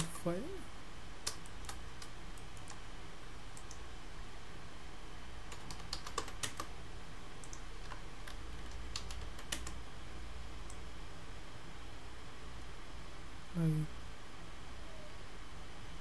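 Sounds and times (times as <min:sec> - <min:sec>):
low steady hum: 0:00.0 - 0:16.0
keyboard keystrokes: 0:01.2 - 0:02.8, 0:05.5 - 0:06.7, 0:07.4 - 0:09.8
mouse clicks: 0:01.2 - 0:02.8, 0:03.6 - 0:03.8.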